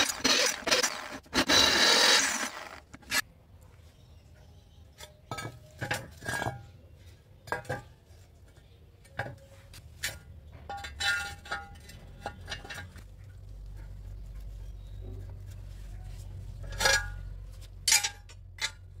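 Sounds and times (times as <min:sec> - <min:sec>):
metal tube clinking on concrete: 0:10.0 - 0:13.0, 0:16.6 - 0:19.0.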